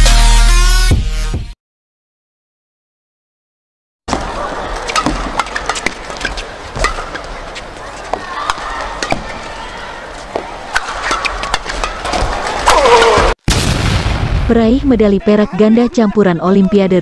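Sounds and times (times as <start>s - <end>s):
racket hitting shuttlecock: 4.1s - 13.0s.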